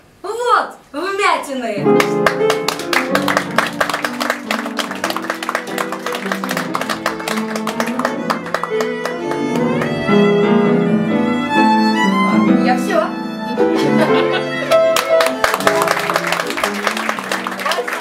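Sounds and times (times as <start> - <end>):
piano playing: 1.8 - 18.0
violin playing: 3.4 - 17.6.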